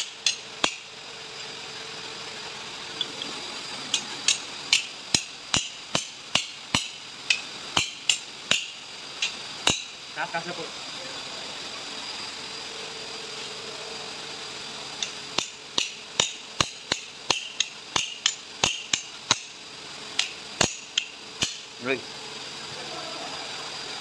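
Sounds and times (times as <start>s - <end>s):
hammer striking metal: 0.0s - 0.9s, 3.9s - 10.0s, 15.0s - 19.6s, 20.2s - 21.7s.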